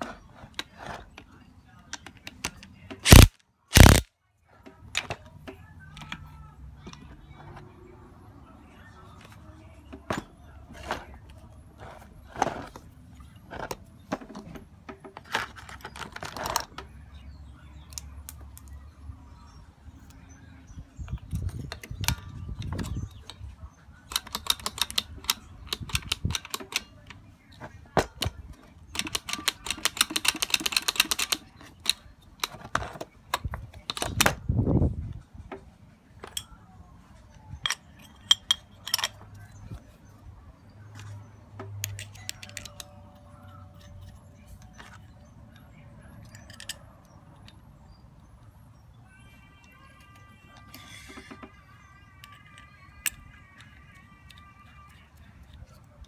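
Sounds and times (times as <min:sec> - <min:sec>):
metal parts clicking and clattering: 0:28.1 - 0:34.4, 0:37.6 - 0:39.8, 0:41.8 - 0:45.1, 0:46.2 - 0:47.6, 0:50.0 - 0:55.8.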